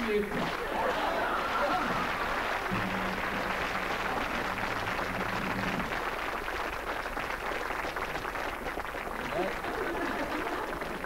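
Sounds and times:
audience applauding: 0.0 - 11.0
low held tone: 2.7 - 5.9.

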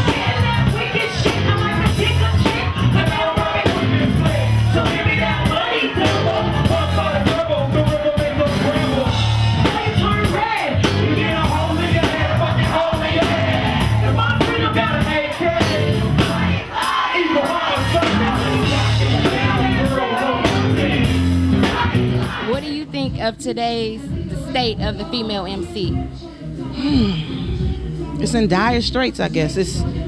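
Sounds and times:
woman rapping into a microphone: 0.0 - 6.2, 22.4 - 30.0
band music with pulsing bass: 0.0 - 30.0.

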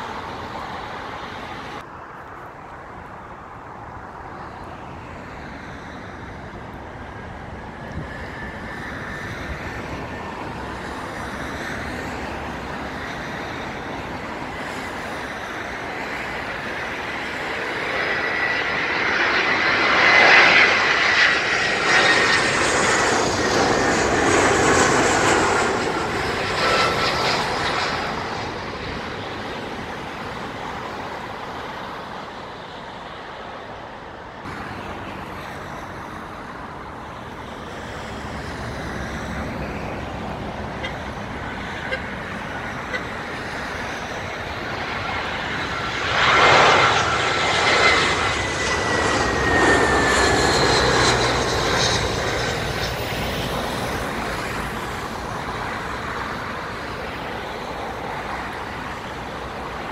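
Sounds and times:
jet airliner passing overhead: 0.0 - 59.9.

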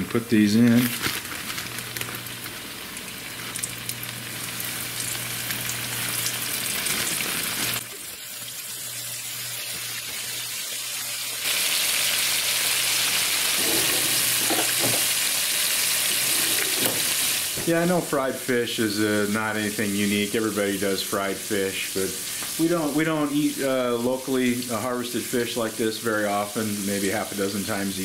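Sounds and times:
fish sizzling in oil: 0.7 - 28.0.

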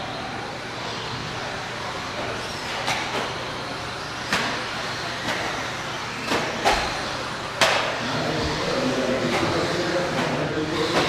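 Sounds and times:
rc car motors and tyres: 0.0 - 11.0
sharp clacks of cars striking track: 4.2 - 8.0.

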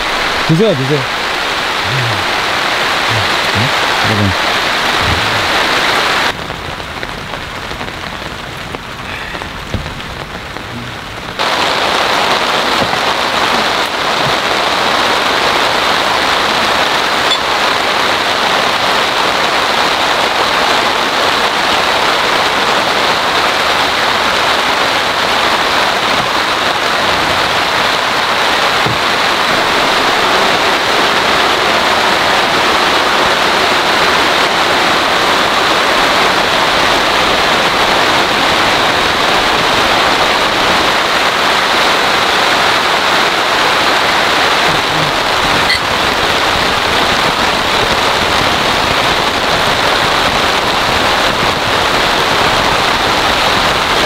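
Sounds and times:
heavy rain pouring: 0.0 - 54.0.

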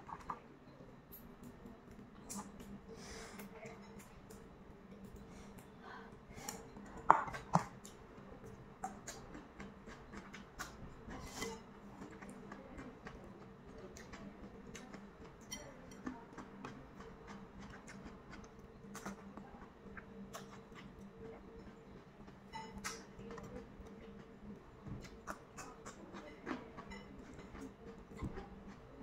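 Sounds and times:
crunchy vegetables being chewed: 8.8 - 29.0.

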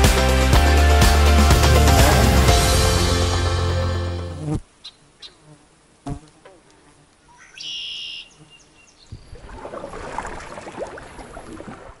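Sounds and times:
short high bird call: 7.3 - 8.9
water splashing: 9.1 - 12.0.

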